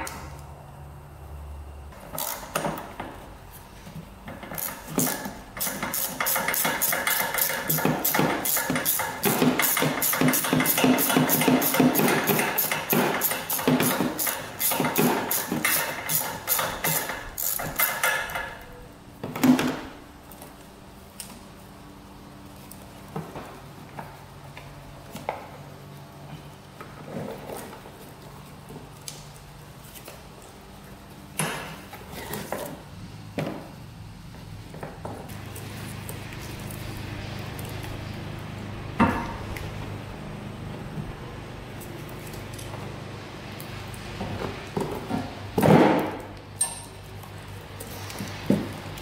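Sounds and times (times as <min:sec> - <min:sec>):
ratchet wrench clicking: 0:04.6 - 0:18.4.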